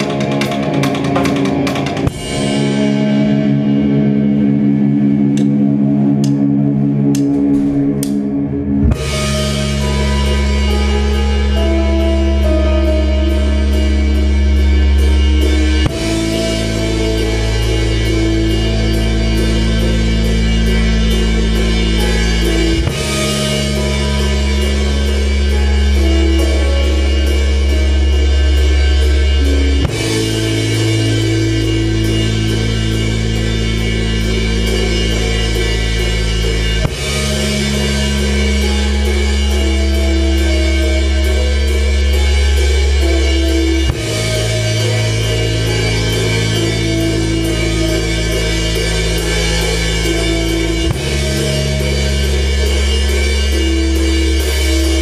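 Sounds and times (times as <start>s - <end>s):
drum kit with cymbals: 0.0s - 55.0s
electric guitar: 0.0s - 55.0s
keyboard: 0.0s - 55.0s
low bass notes: 0.0s - 55.0s.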